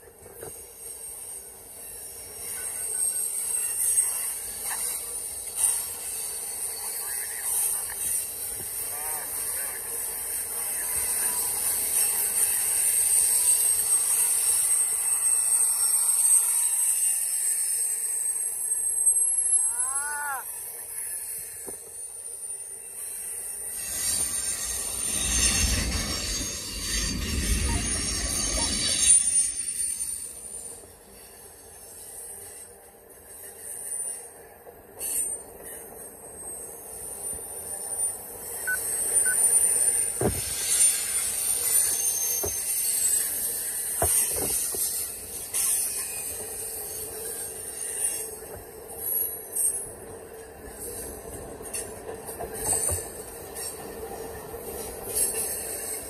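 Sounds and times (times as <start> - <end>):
steel wheels hissing on rails: 0.0 - 56.0
high-pitched wheel squeal: 10.9 - 20.8, 37.8 - 48.3.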